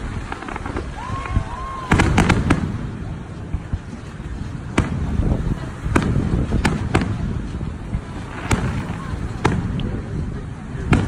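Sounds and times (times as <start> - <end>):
steady low rumble: 0.0 - 11.0
firework shells bursting: 1.8 - 3.1, 4.6 - 10.1.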